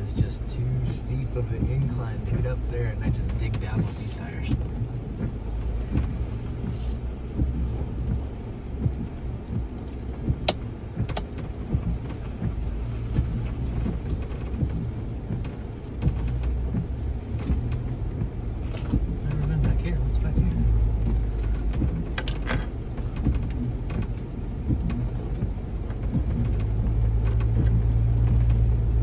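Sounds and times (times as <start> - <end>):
low engine rumble: 0.0 - 29.0
suspension knocking: 0.0 - 29.0
sharp clicks: 7.3 - 12.6, 13.2 - 28.8.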